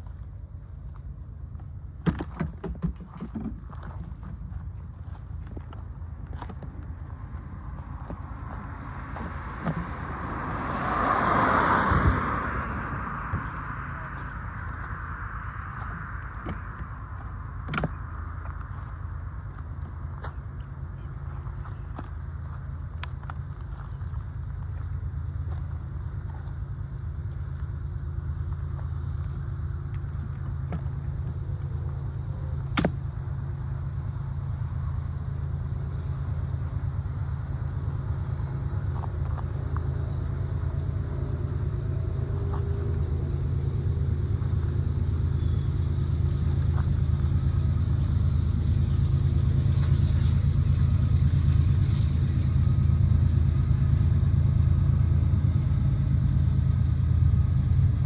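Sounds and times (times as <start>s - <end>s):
diesel locomotive rumbling: 0.0s - 58.0s.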